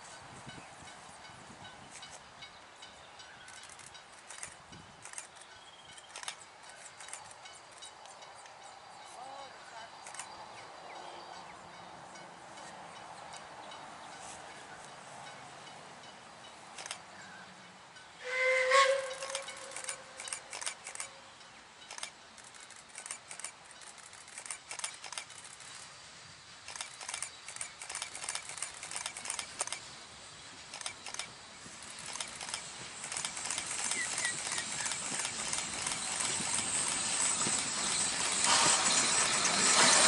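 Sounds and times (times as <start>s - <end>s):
steam locomotive exhaust beats: 10.0s - 40.0s
steam locomotive whistle: 18.2s - 20.4s, 38.4s - 40.0s
steam hissing: 18.2s - 21.0s, 24.2s - 40.0s.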